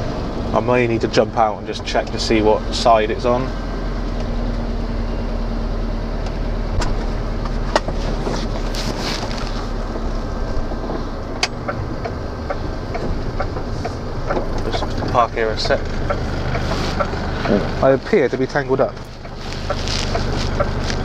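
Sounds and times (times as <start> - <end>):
diesel engine hum: 0.0 - 21.0
sharp clicks and knocks: 6.2 - 8.4, 10.9 - 21.0
tyre noise on wet road: 6.7 - 21.0.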